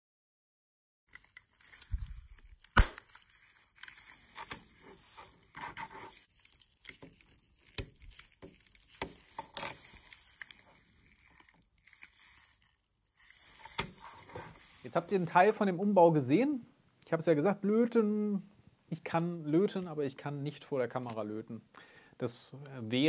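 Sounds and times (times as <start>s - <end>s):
sharp plastic click: 2.6s - 3.1s.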